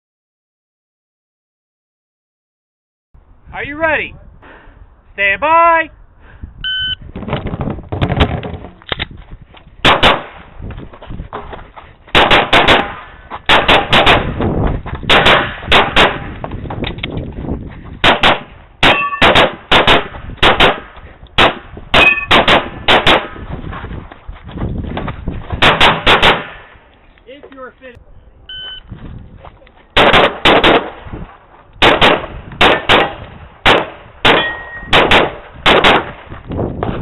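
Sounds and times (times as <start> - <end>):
pistol firing rapid shots: 9.8 - 10.4, 12.1 - 14.4, 15.1 - 16.4, 18.0 - 23.4, 25.6 - 26.6, 30.0 - 31.0, 31.8 - 36.2.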